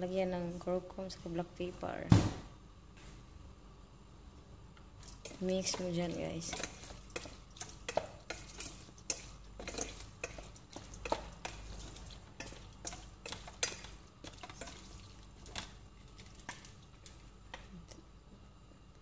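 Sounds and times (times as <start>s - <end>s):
spatula scraping metal colander: 5.0s - 15.7s.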